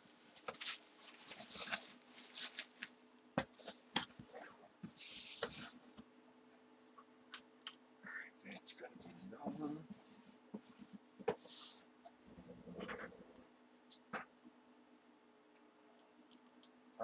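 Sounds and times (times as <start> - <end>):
cardboard rustling and scraping: 0.1 - 5.9.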